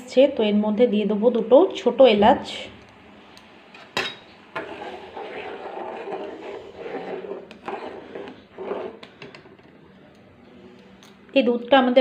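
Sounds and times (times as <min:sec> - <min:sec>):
metal spoon stirring in a pan: 0:03.8 - 0:09.4.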